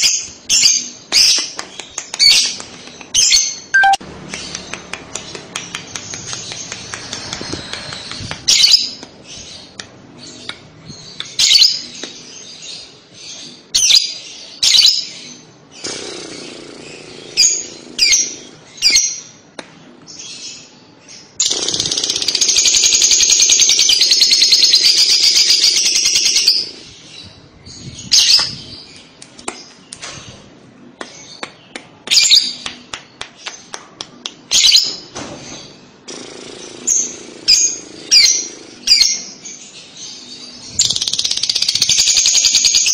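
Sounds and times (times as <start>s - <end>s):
lovebird chattering trill: 3.2s - 4.6s
lovebird chirping: 3.2s - 10.5s.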